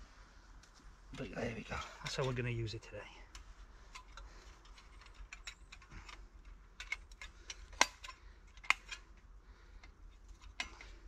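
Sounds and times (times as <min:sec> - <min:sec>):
thin metal parts clicking: 0:03.3 - 0:09.2.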